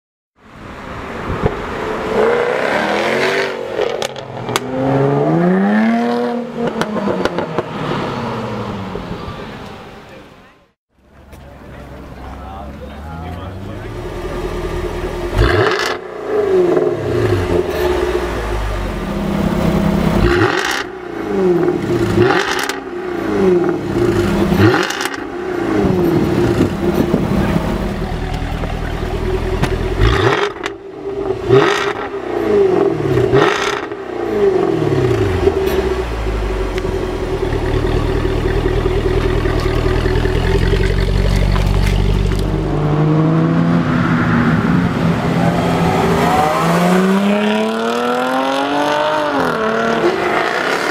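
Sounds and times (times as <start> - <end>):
car engine accelerating hard: 13.0 - 50.9
exhaust cracks: 35.0 - 42.8.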